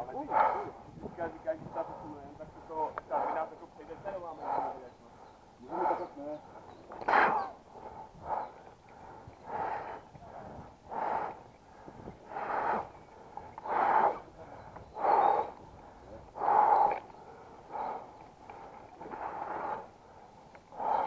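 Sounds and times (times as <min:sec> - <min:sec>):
person breathing hard: 0:04.4 - 0:21.0.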